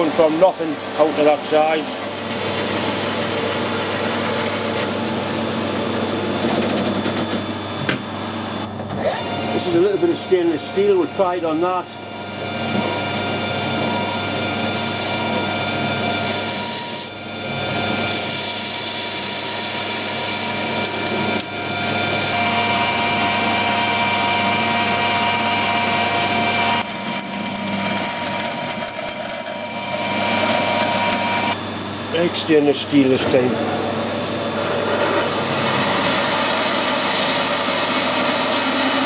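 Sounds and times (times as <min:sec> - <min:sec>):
metal lathe running with gear whine: 0:00.0 - 0:39.0
tool cutting steel bar: 0:16.1 - 0:17.1, 0:18.0 - 0:22.8, 0:25.6 - 0:31.6
drill boring into metal with hiss: 0:16.2 - 0:17.1, 0:18.1 - 0:21.1.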